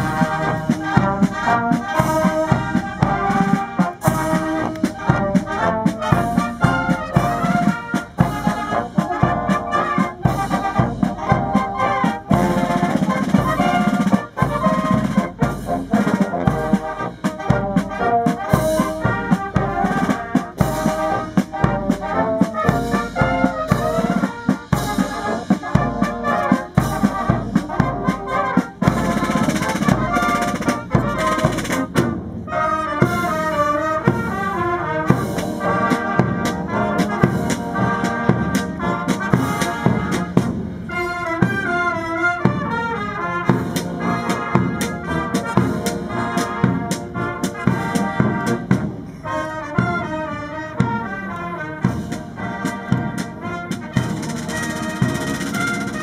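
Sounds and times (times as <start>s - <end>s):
brass band playing: 0.0s - 56.0s
snare and bass drums: 0.0s - 56.0s.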